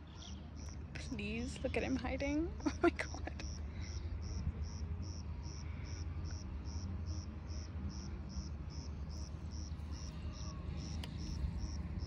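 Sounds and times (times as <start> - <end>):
cricket chirping: 3.4 - 12.0.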